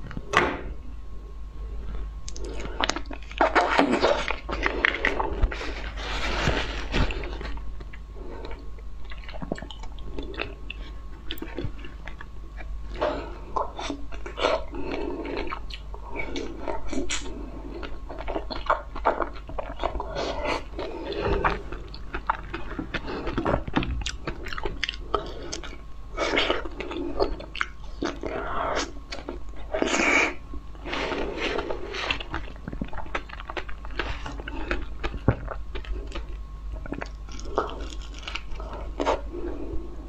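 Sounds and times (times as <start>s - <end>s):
chewing with wet mouth clicks: 7.8s - 12.7s, 13.6s - 20.2s, 20.8s - 28.4s.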